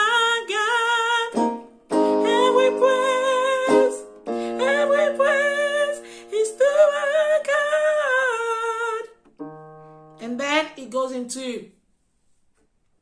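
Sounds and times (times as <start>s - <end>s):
woman singing gospel: 0.0s - 1.4s, 2.1s - 9.1s
keyboard chords: 1.3s - 8.0s, 9.1s - 10.9s.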